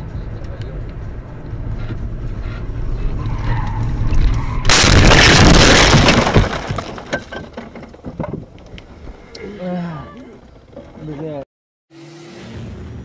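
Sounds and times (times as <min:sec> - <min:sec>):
car road and engine rumble: 0:00.0 - 0:05.8, 0:10.2 - 0:13.0
car collision crash: 0:04.6 - 0:08.0.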